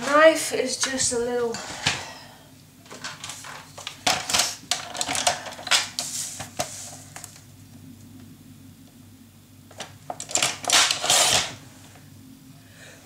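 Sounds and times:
paper rustling: 0:02.9 - 0:07.4.

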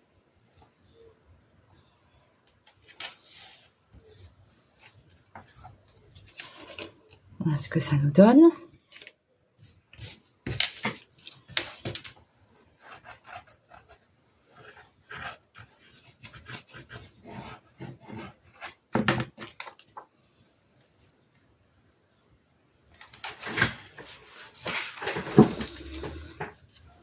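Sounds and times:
paper sliding and rustling: 0:23.0 - 0:26.4.

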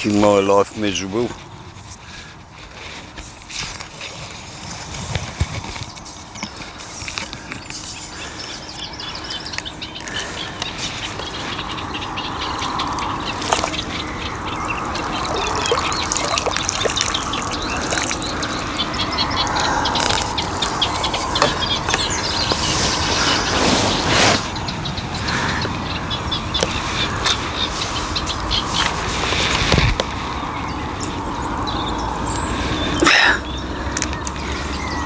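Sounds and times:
birds chattering: 0:00.0 - 0:35.0
duck-like calls: 0:12.0 - 0:22.6.

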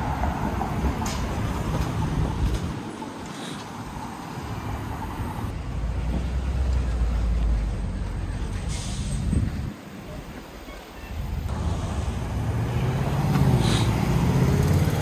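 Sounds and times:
motor vehicle passing: 0:11.5 - 0:15.0.

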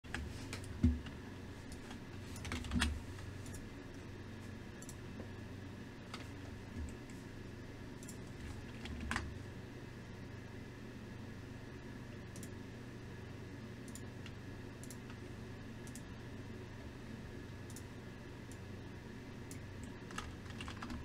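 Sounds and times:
steady low hum: 0:00.0 - 0:21.0
keyboard key presses and clicks: 0:01.8 - 0:03.6, 0:19.8 - 0:21.0.

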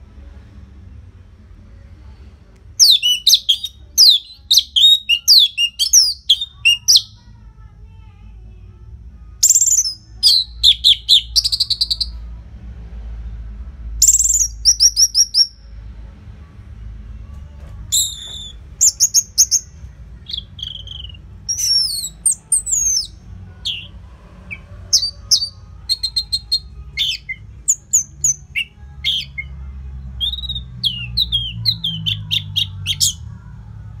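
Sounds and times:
bird singing: 0:02.8 - 0:07.2, 0:09.4 - 0:12.2, 0:14.0 - 0:15.6, 0:17.9 - 0:29.6, 0:30.2 - 0:33.3.

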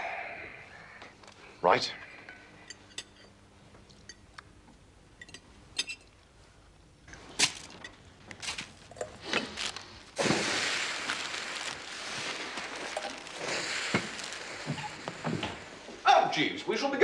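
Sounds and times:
steady rushing hiss: 0:09.9 - 0:17.0.

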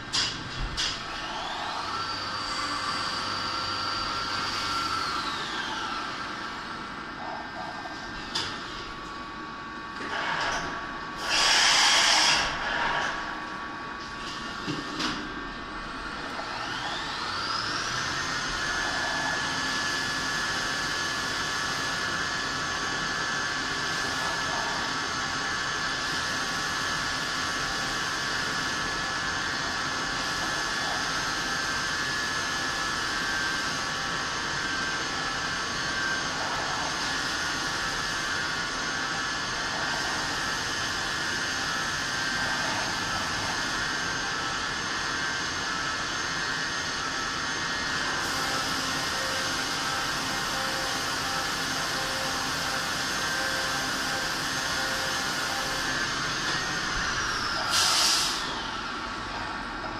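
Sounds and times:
milling spindle whine: 0:00.8 - 0:59.9
coolant spray hissing: 0:11.2 - 0:12.4, 0:57.7 - 0:58.4.

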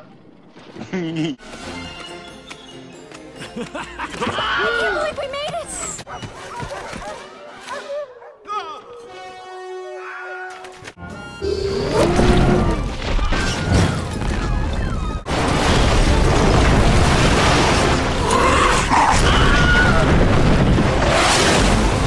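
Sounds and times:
crash and explosion effects: 0:11.9 - 0:22.0
blast and debris rumble: 0:12.1 - 0:22.0.

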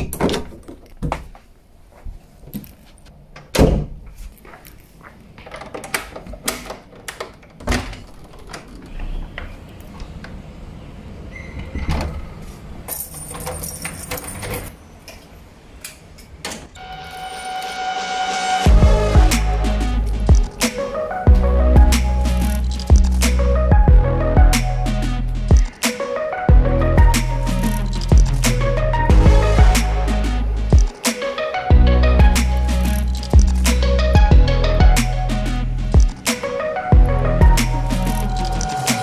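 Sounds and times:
music: 0:16.8 - 0:39.0.

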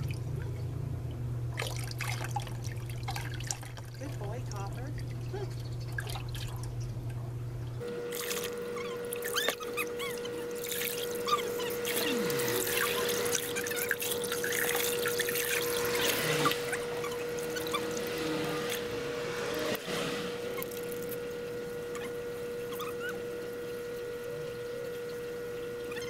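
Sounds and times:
steady hum: 0:00.0 - 0:26.0
water pouring and splashing: 0:01.5 - 0:06.8, 0:08.1 - 0:09.6, 0:10.5 - 0:18.8.

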